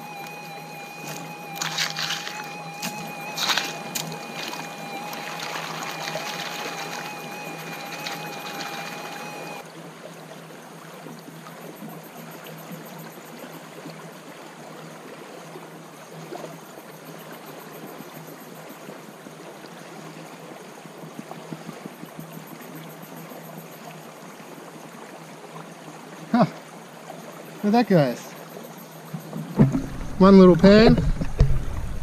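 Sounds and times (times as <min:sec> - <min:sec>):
creek water running: 0:00.0 - 0:32.0
water sloshing in gold pan: 0:01.1 - 0:09.6.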